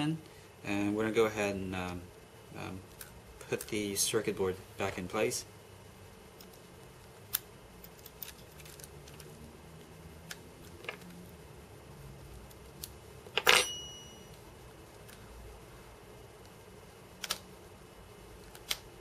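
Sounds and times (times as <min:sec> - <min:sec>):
metal tool clattering on desk: 0:13.4 - 0:14.2.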